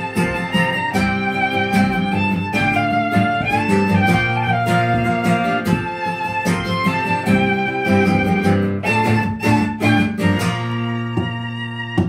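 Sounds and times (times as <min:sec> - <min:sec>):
acoustic guitar strumming: 0:00.0 - 0:12.0
violin melody: 0:00.0 - 0:12.0.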